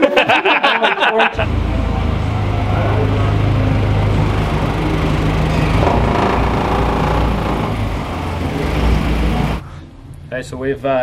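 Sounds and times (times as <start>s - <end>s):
car engine running at low revs: 1.4s - 9.6s.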